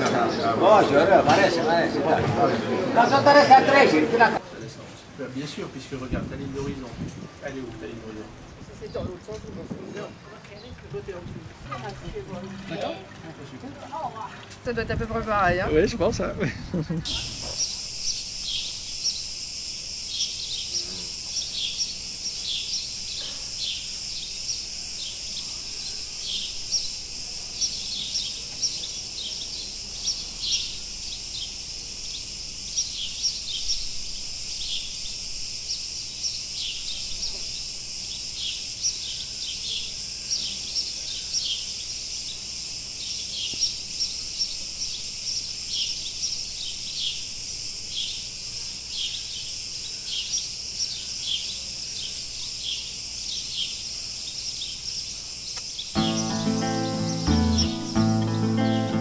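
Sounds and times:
cicadas buzzing: 0.0s - 59.0s
bird chirps: 52.7s - 59.0s.

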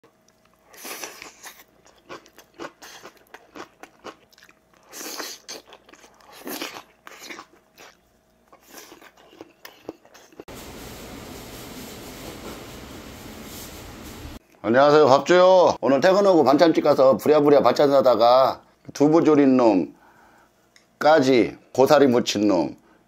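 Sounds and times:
man chewing food: 0.1s - 10.5s
steady background hiss: 10.5s - 14.4s.

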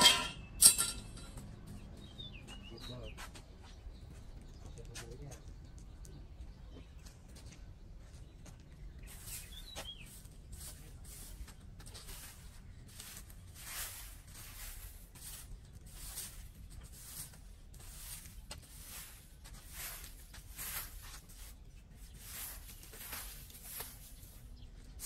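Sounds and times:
bird chirping: 0.0s - 11.5s
broom sweeping leaves on paving: 9.0s - 25.0s.

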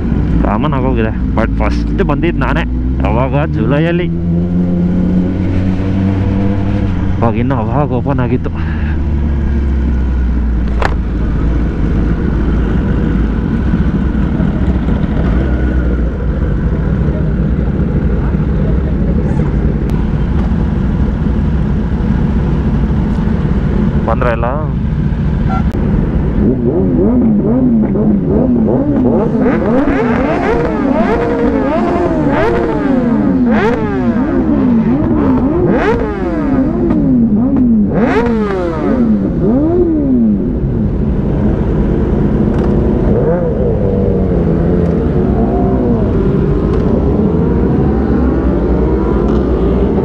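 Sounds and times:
steady low rush: 0.0s - 29.4s
motorcycle engine revving: 0.0s - 50.0s.

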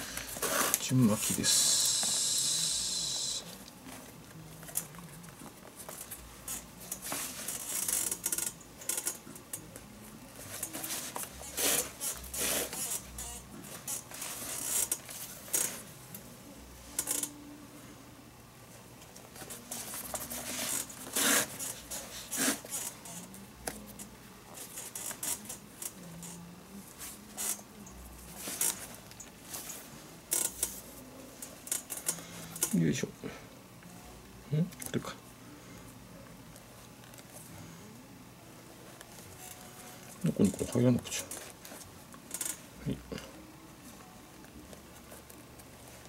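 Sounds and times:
lace hissing through leather: 0.3s - 3.5s, 20.3s - 22.9s.

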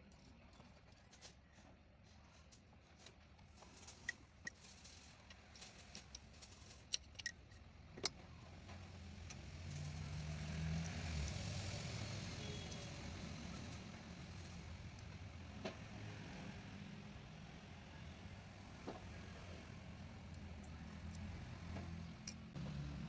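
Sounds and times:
metallic clicks and taps of tools: 3.9s - 9.9s, 19.9s - 22.6s.

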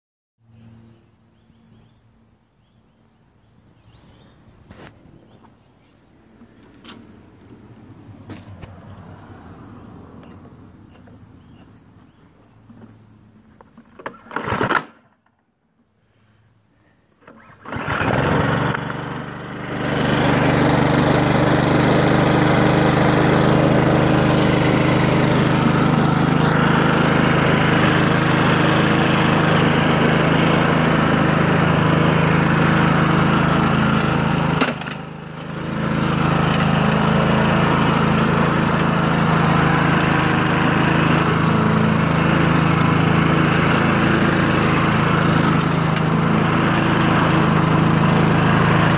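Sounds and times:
pull cord of mower: 12.6s - 15.4s, 17.2s - 48.9s
lawn mower engine running: 17.2s - 48.9s.

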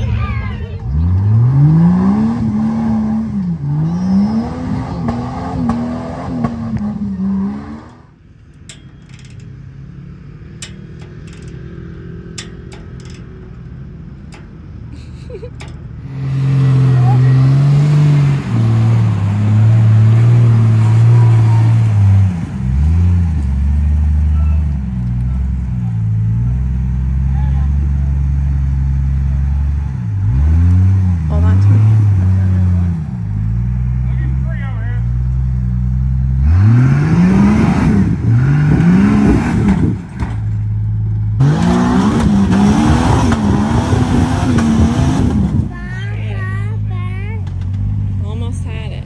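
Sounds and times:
engine revving under load: 0.0s - 49.0s
sharp clicks: 10.5s - 15.9s.

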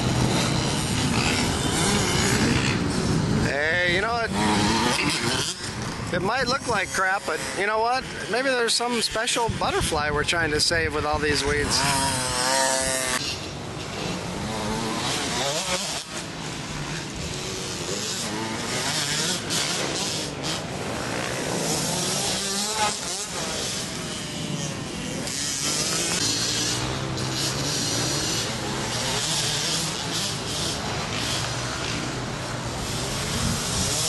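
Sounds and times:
dirt bike engines revving: 0.0s - 34.0s.

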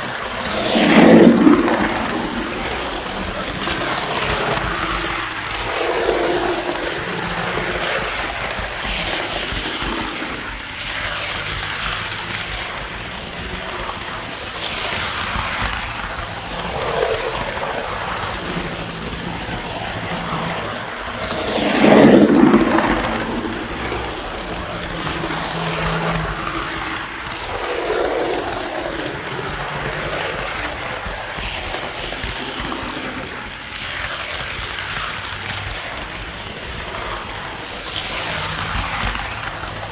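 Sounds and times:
model train wheels rumbling: 0.0s - 39.9s.

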